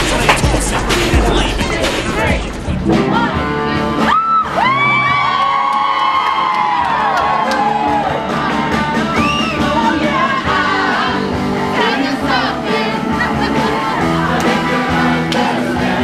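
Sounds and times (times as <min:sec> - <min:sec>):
crowd singing over music: 0:00.0 - 0:03.8, 0:07.6 - 0:16.0
whoops and yells: 0:04.0 - 0:08.2.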